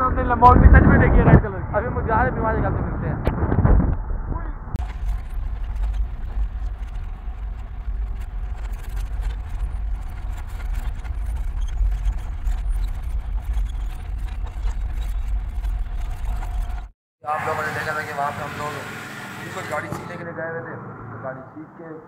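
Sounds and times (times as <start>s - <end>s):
tyres rumbling on unpaved road: 0.0s - 21.8s.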